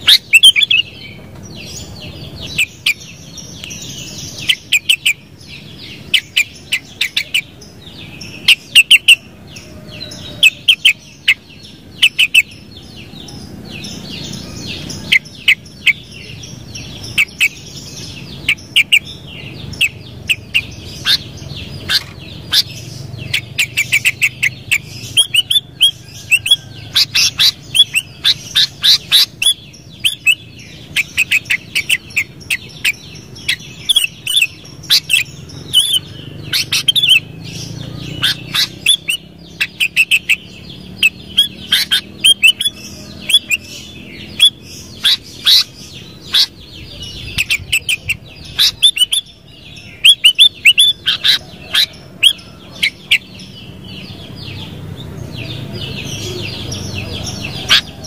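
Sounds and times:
bulbul chirping: 0.0 - 1.2, 8.2 - 9.3, 15.0 - 53.7.

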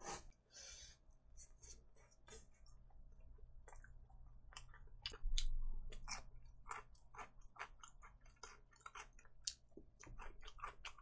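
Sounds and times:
crunchy chewing: 3.6 - 11.0.

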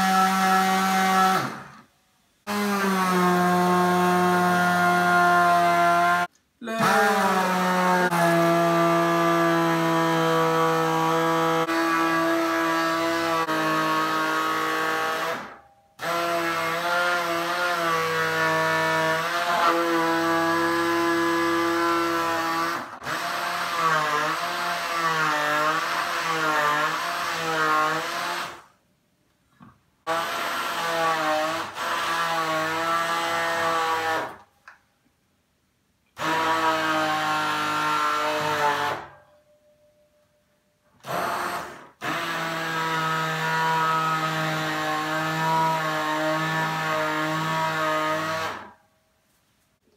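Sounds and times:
hand blender motor whine: 41.0 - 48.7.

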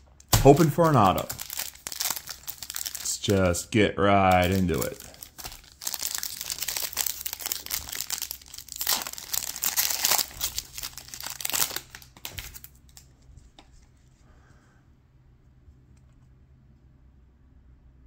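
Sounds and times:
foil wrapper tearing and crinkling: 0.2 - 3.6, 4.3 - 13.1.

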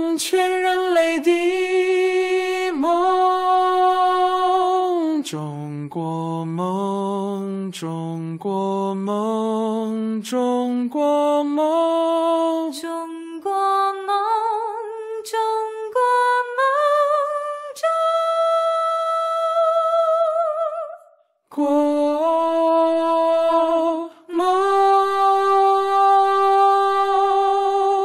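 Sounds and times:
wordless melody with vibrato: 24.3 - 28.0.

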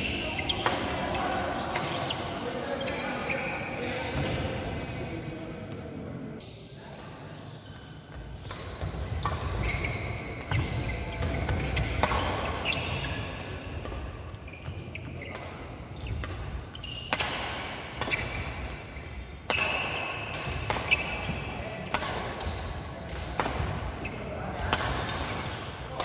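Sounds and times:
racket hitting shuttlecock: 0.1 - 1.1, 8.4 - 13.1, 15.2 - 18.8, 19.4 - 26.0.

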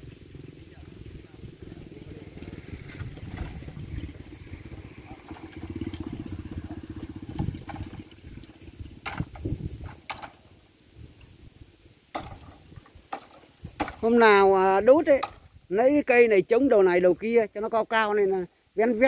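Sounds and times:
low pulsing engine rumble: 0.0 - 12.9
bamboo stems cracking and knocking: 2.9 - 4.2, 5.0 - 10.5, 12.1 - 14.4, 15.0 - 15.5.

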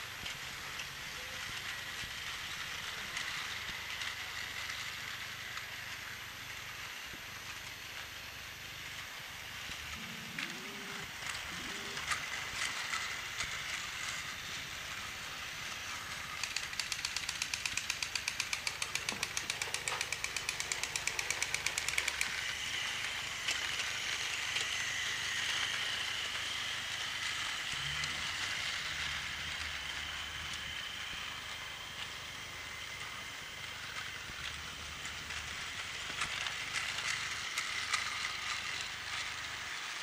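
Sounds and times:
toy train motor whirring: 0.0 - 40.0
high steady whine: 9.0 - 37.4
fast even clicking: 16.4 - 22.3.

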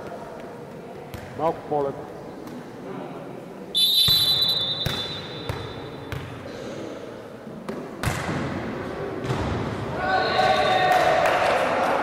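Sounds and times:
referee's whistle blast: 3.8 - 5.8.

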